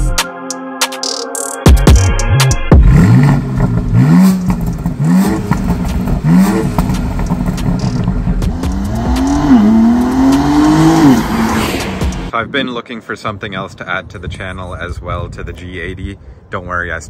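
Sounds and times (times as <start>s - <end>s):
car engine revving and accelerating: 2.7s - 12.3s.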